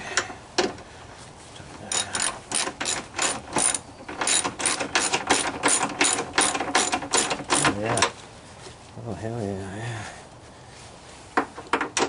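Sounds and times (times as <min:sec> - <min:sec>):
socket ratchet ratcheting: 0:01.9 - 0:08.1.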